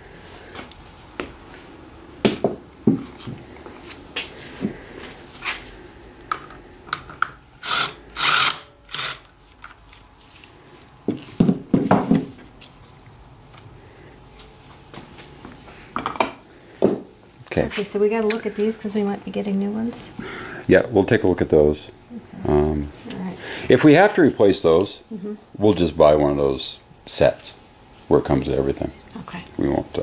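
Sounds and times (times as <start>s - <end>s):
power driver bursts: 7.6s - 9.3s.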